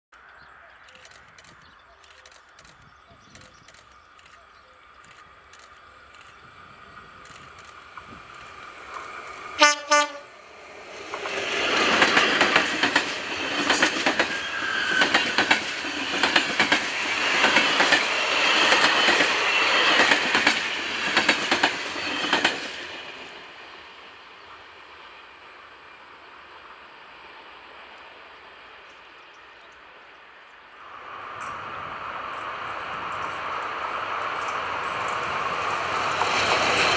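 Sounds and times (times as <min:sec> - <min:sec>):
train passing: 0:00.2 - 0:36.9
locomotive horn blasts: 0:09.6 - 0:10.3
wheels clicking over rail joints: 0:11.1 - 0:22.8.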